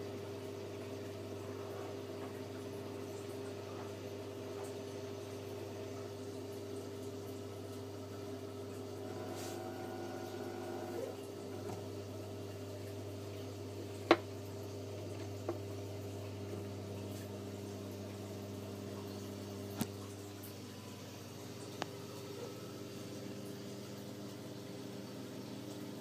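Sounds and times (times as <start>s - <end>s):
electric pump hum: 0.0s - 26.0s
water bubbling and trickling: 0.0s - 26.0s.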